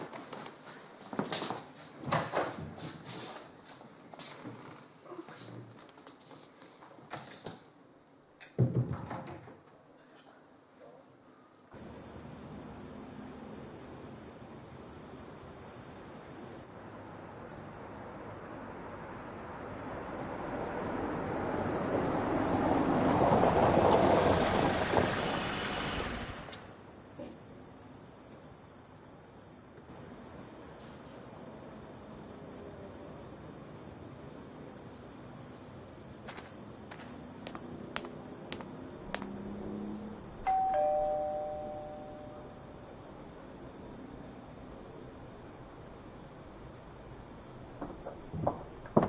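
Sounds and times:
car noise: 0:20.0 - 0:26.9
two-tone doorbell chime: 0:40.5 - 0:42.6.

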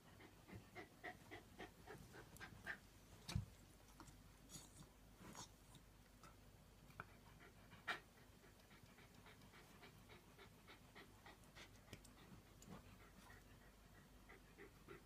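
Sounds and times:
dog panting rapidly: 0:00.0 - 0:02.9, 0:07.0 - 0:15.0.

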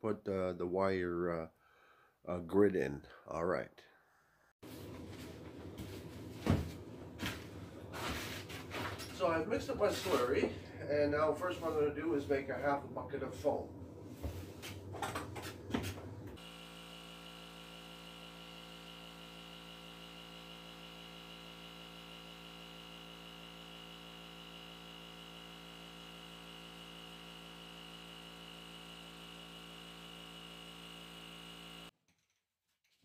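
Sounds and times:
foam generator humming: 0:15.8 - 0:31.9
high machine whine: 0:16.3 - 0:31.9.

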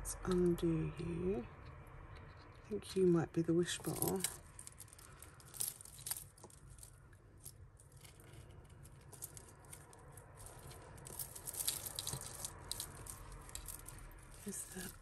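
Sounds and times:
jewellery chains clinking: 0:03.8 - 0:15.0.

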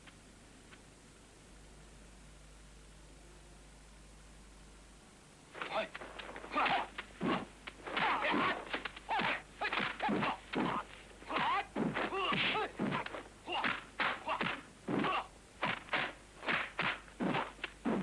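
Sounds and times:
fighters shouting: 0:05.6 - 0:16.1
punch and kick impacts: 0:05.6 - 0:18.0.

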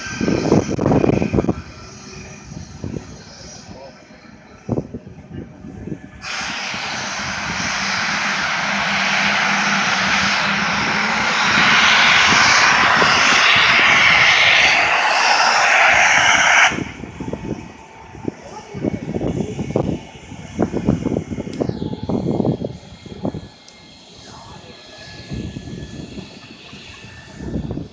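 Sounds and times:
distant jet engine hissing: 0:06.1 - 0:27.6.

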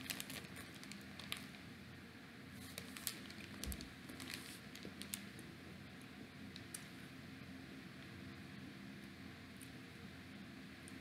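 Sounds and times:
plastic snack pouch crinkling: 0:00.0 - 0:01.6, 0:02.6 - 0:05.4.

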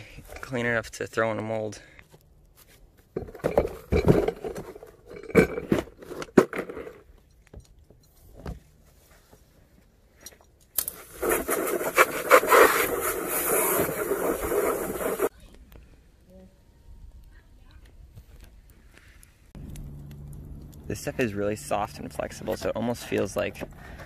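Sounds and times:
hose water spraying: 0:11.0 - 0:15.3.

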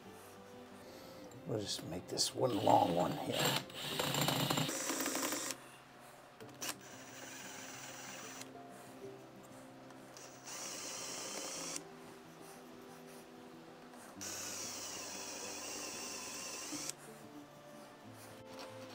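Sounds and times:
soft background music: 0:00.0 - 0:18.9
electric drill boring into metal: 0:02.5 - 0:05.6, 0:06.6 - 0:08.5, 0:10.2 - 0:11.8, 0:14.2 - 0:17.0.

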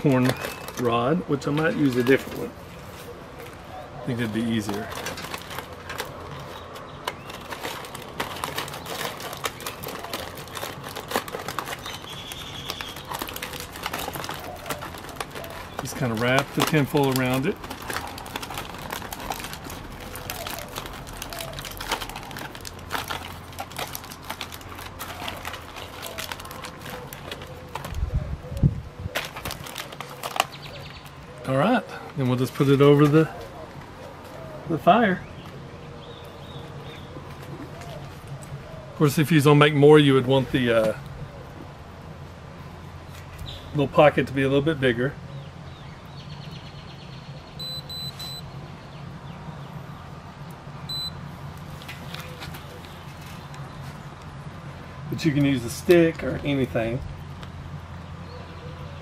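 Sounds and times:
aluminium foil crinkling: 0:00.0 - 0:28.1, 0:29.1 - 0:31.2, 0:51.6 - 0:54.3
short high beeps: 0:47.6 - 0:48.4, 0:50.9 - 0:51.2.

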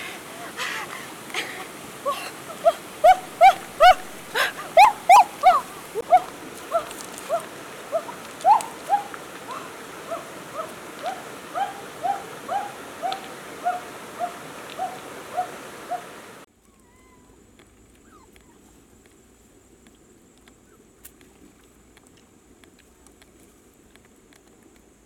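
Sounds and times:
young animal whimpering: 0:02.0 - 0:15.5, 0:16.6 - 0:17.4, 0:18.0 - 0:18.7.

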